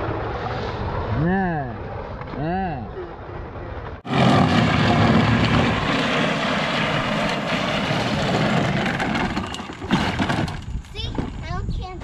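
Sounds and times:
plastic wheels grinding on asphalt: 4.1 - 11.5.

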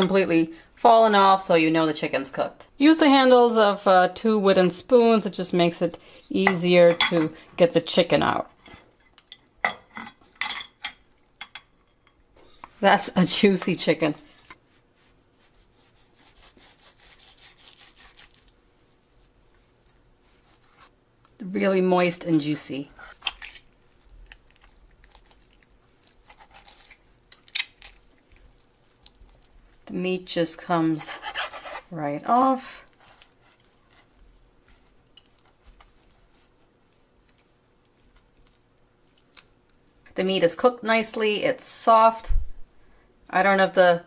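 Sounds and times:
knife sawing through chicken: 15.4 - 18.5, 30.9 - 31.9.

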